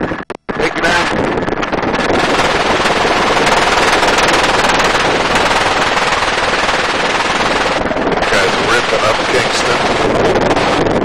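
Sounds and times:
helicopter wind and rotor noise: 0:00.0 - 0:11.0
machine gun firing full-auto: 0:02.1 - 0:09.8.

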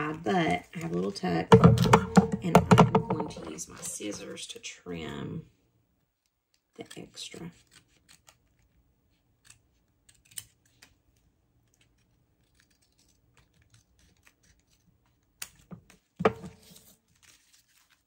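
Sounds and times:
knock: 0:01.5 - 0:03.5
scissors snipping paper: 0:06.7 - 0:15.7.

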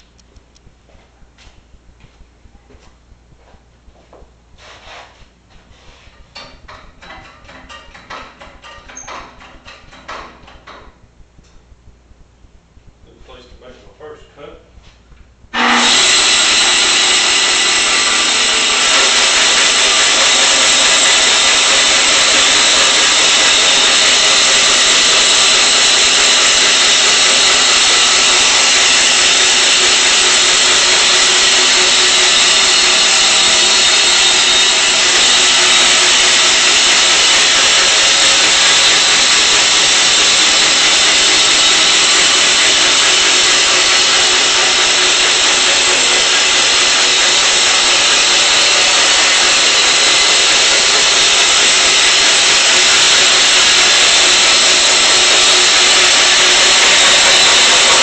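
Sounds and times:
bandsaw cutting through log: 0:15.6 - 0:58.0.

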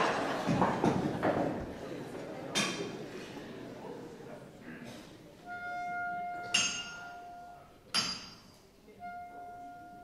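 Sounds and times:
hammer ringing on anvil: 0:06.4 - 0:08.6
sharp bright metal clanks: 0:06.5 - 0:07.2, 0:07.9 - 0:08.6.

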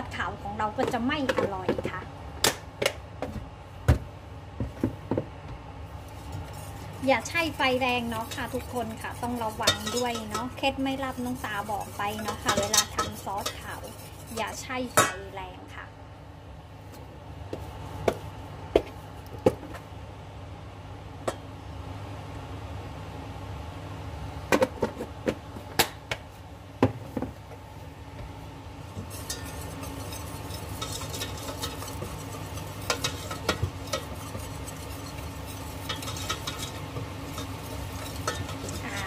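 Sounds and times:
steady low hum: 0:00.0 - 0:39.0
utensil stirring in a pot: 0:05.9 - 0:15.2, 0:28.8 - 0:39.0
utensil knocking against pan: 0:11.4 - 0:14.0.

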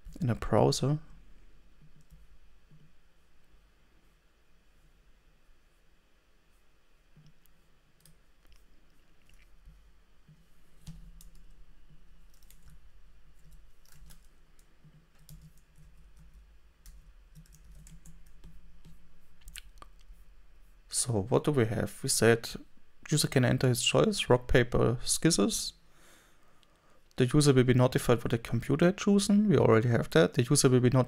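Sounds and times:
low steady hum: 0:00.0 - 0:31.0
computer keyboard keystrokes: 0:12.3 - 0:12.8, 0:13.4 - 0:19.0.

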